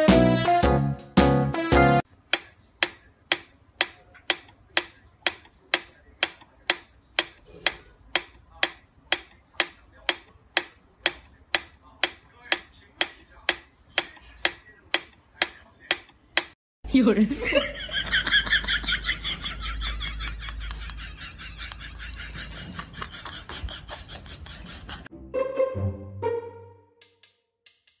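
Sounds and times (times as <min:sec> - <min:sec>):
metronome ticking: 0:02.3 - 0:16.6.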